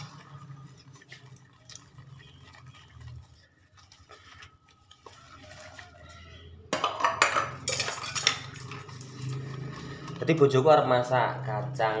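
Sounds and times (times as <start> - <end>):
plates and cutlery clinking: 6.7 - 9.4.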